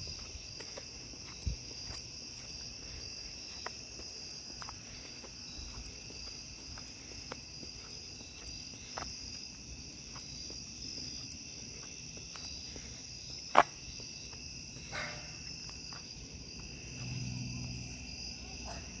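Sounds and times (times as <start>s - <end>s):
night insects trilling: 0.0s - 19.0s
low hum: 16.3s - 18.9s.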